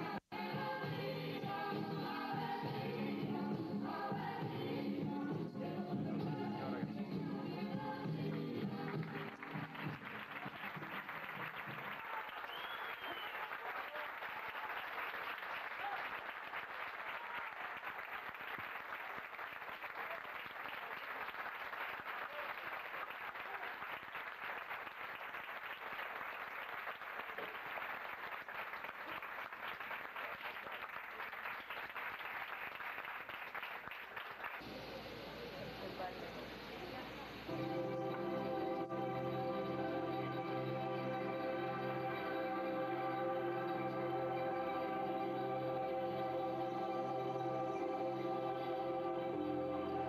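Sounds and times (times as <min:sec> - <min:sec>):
music: 0:00.0 - 0:12.0, 0:37.5 - 0:50.0
audience applauding: 0:08.3 - 0:35.0.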